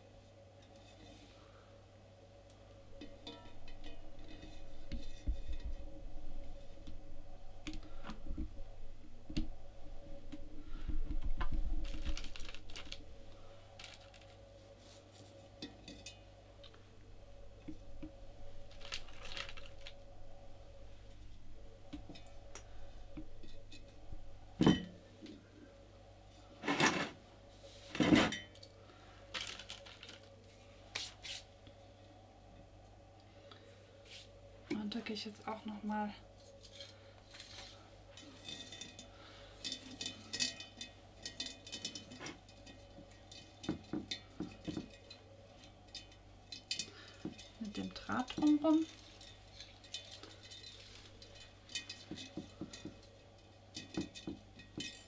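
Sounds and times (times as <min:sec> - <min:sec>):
rustling of decorating material: 0:00.0 - 0:32.2, 0:33.4 - 0:55.0
small objects clinking against glass: 0:36.6 - 0:55.0.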